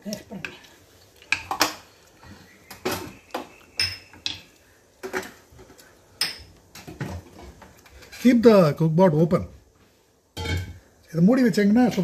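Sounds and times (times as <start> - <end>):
metal utensils striking pots: 2.7 - 5.3, 10.4 - 10.8.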